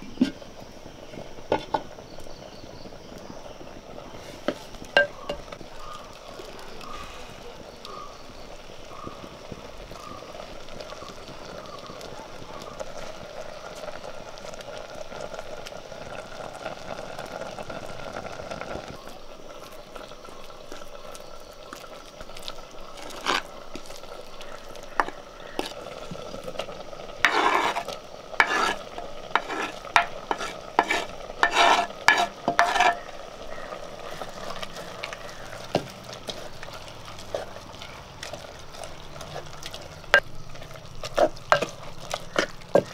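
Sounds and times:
steady hiss from pot: 0:00.0 - 0:42.9
ladle knocking clay pot: 0:04.5 - 0:05.6, 0:27.2 - 0:27.8, 0:28.4 - 0:28.8, 0:29.4 - 0:33.0
ladle stirring in clay pot: 0:19.6 - 0:42.9.

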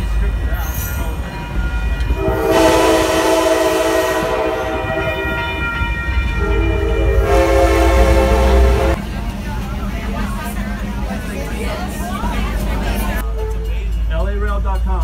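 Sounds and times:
train rumble: 0:00.0 - 0:15.0
locomotive air horn blasts: 0:02.1 - 0:09.0.

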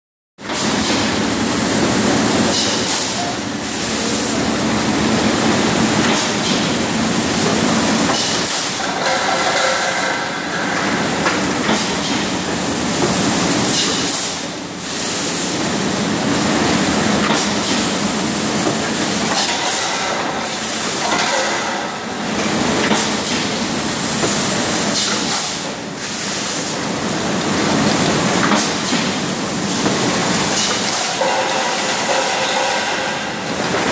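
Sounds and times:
bottling machinery clatter and hiss: 0:00.4 - 0:33.9.

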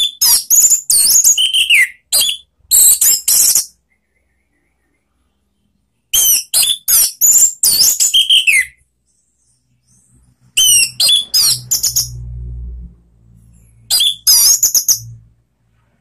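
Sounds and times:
thrush singing whistled notes: 0:00.0 - 0:05.3, 0:06.1 - 0:12.3, 0:13.5 - 0:15.3
low hum: 0:11.6 - 0:13.9.

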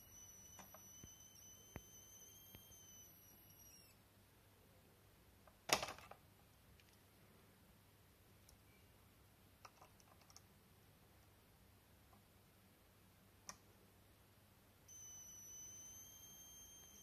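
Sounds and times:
high-pitched coil whine: 0:00.0 - 0:04.0, 0:14.9 - 0:17.0.

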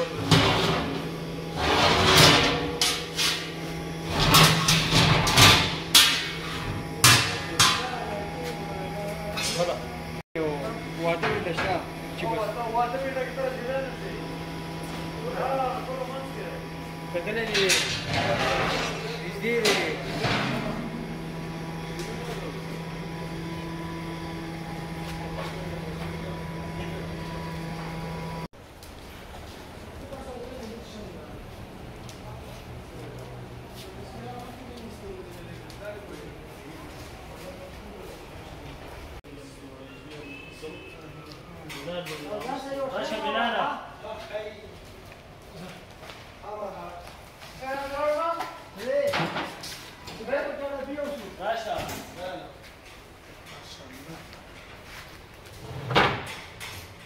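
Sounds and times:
low mechanical hum: 0:00.0 - 0:39.4
steel lid scraping on concrete: 0:01.5 - 0:03.4.

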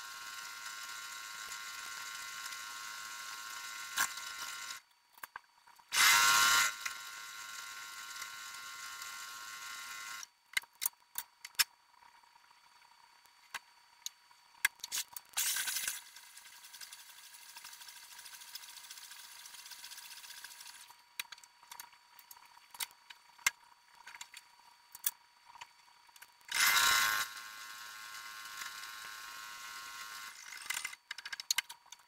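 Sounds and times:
high-pitched sewing machine whir: 0:00.0 - 0:04.9, 0:05.9 - 0:10.3, 0:15.4 - 0:21.1, 0:26.5 - 0:31.1.

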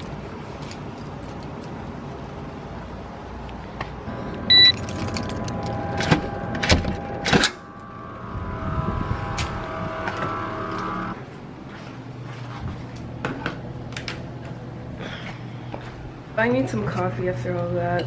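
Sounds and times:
steady hum: 0:01.9 - 0:17.8
short electronic beep: 0:04.5 - 0:04.8.

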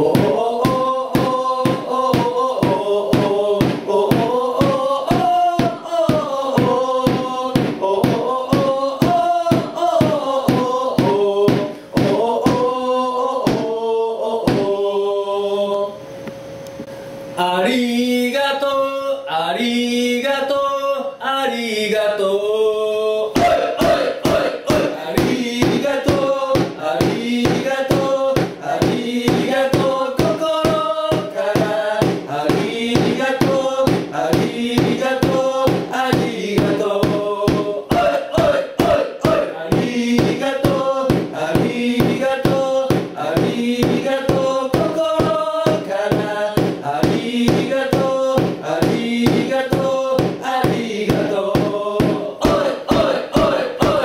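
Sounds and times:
steady percussive beat: 0:00.0 - 0:12.7, 0:23.4 - 0:54.0
crowd chanting: 0:00.0 - 0:15.0, 0:23.3 - 0:54.0.

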